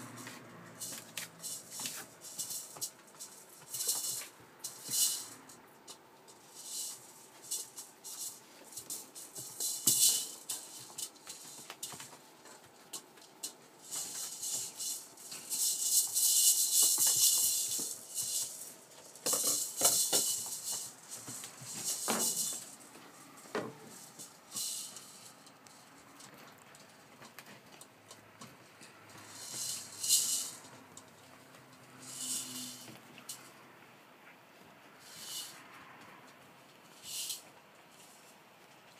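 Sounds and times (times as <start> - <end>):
thumps: 15.4 - 27.6.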